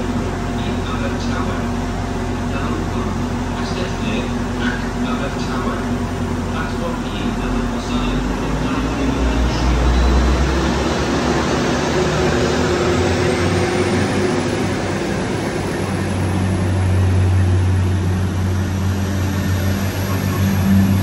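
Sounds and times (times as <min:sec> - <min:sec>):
diesel train engines pulling away: 0:00.0 - 0:21.0
faint high whine rising: 0:07.2 - 0:21.0.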